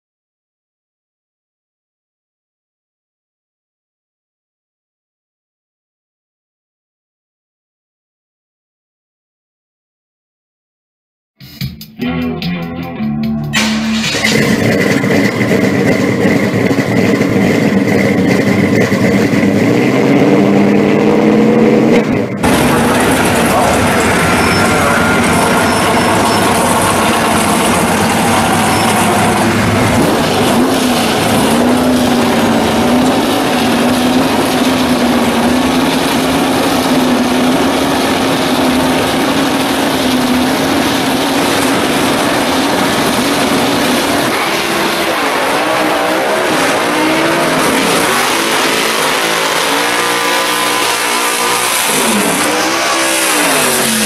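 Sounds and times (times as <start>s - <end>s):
car engine revving: 13.2s - 54.0s.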